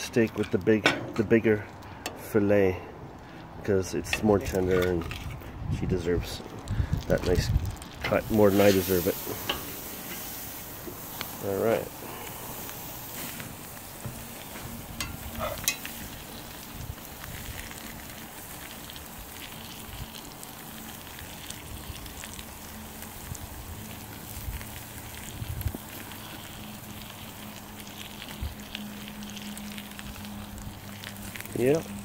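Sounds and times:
steaks sizzling on a grill: 7.1s - 32.0s.

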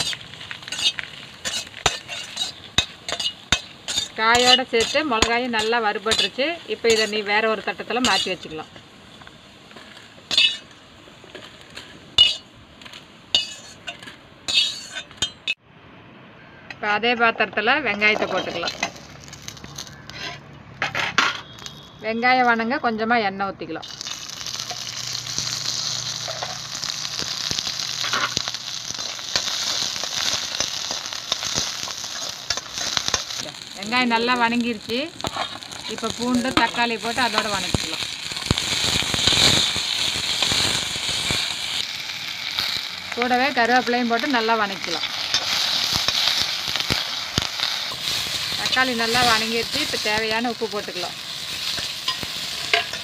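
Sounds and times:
ladle scraping iron pan: 0.0s - 7.3s, 9.8s - 10.7s, 11.8s - 12.4s, 13.4s - 15.6s, 51.6s - 53.0s
onions sizzling in hot oil: 0.0s - 15.6s, 18.0s - 20.4s, 23.8s - 53.0s.

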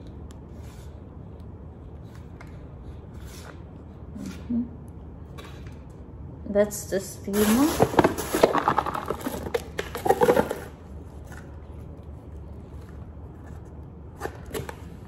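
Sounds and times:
plastic packaging rustling: 7.4s - 11.6s.

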